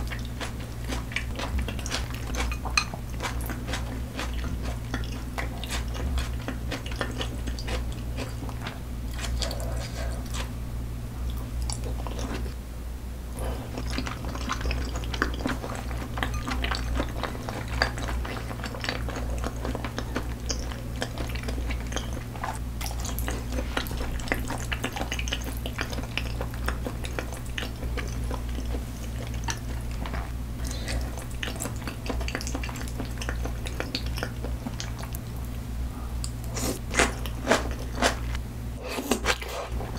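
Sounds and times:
steady low hum: 0:00.0 - 0:39.9
chopsticks tapping dishes: 0:02.4 - 0:03.0.

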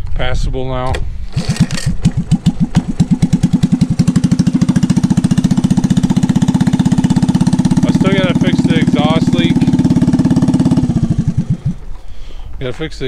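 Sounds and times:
small engine pull-started: 0:01.3 - 0:03.1.

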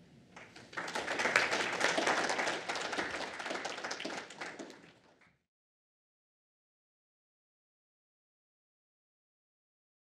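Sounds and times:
audience applauding: 0:00.4 - 0:05.3.

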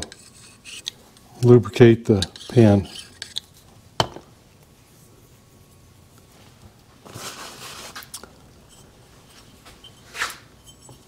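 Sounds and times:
rustle of handled parts: 0:06.2 - 0:11.0.

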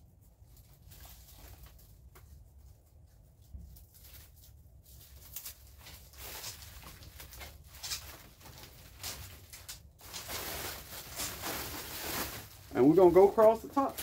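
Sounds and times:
bubble wrap crinkling: 0:00.1 - 0:14.0.

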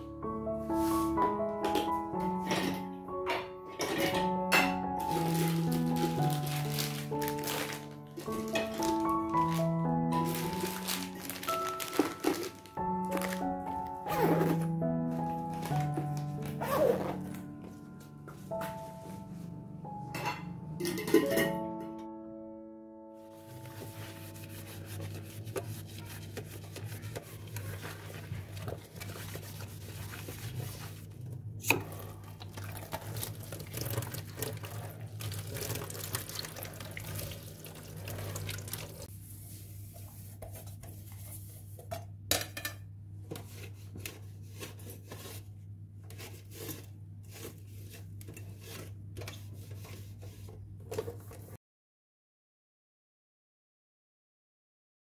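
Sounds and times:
dishware clinking: 0:20.1 - 0:21.9
cloth wiping: 0:23.3 - 0:31.1
sponge scrubbing a plate: 0:23.3 - 0:31.2, 0:32.1 - 0:41.8, 0:43.4 - 0:51.6
tap water running: 0:31.7 - 0:39.1.

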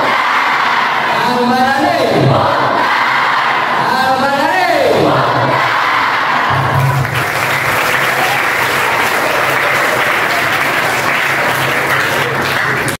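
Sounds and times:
crowd applauding: 0:06.5 - 0:13.0.

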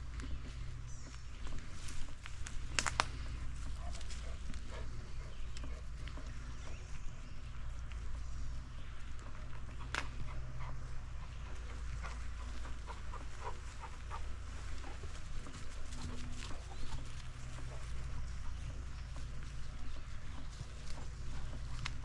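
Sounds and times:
steady low rumble: 0:00.0 - 0:22.0
clicks and crunches: 0:02.2 - 0:03.3.

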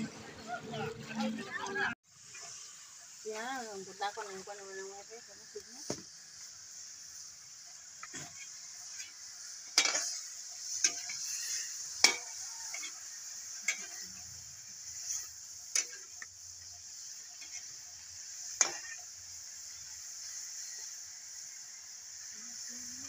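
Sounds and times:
food sizzling: 0:00.0 - 0:23.0
metal ladle scraping a wok: 0:06.8 - 0:21.0.

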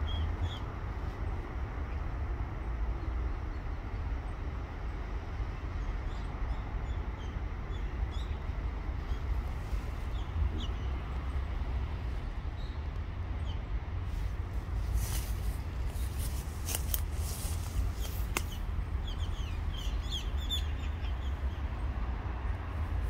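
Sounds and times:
steady low rumble: 0:00.0 - 0:23.0
small birds chirping: 0:14.9 - 0:21.9.

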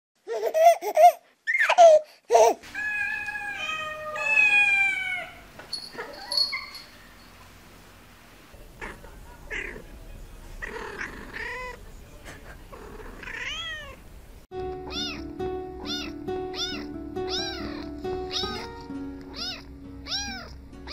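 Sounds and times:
cats meowing: 0:02.7 - 0:06.6, 0:08.8 - 0:09.9, 0:10.6 - 0:11.8, 0:12.9 - 0:14.0, 0:14.8 - 0:20.9
backing music track: 0:14.5 - 0:20.9.

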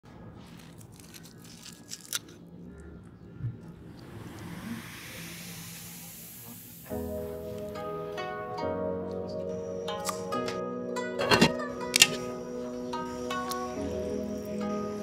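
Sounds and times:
knife crunching crispy pork skin: 0:00.5 - 0:02.5
rising hiss: 0:03.9 - 0:08.3.

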